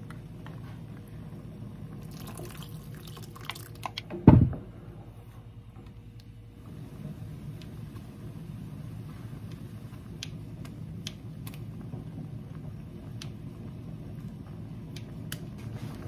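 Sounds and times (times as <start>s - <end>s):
gas flame rumble: 0.0s - 16.0s
soup boiling hard: 1.7s - 4.0s.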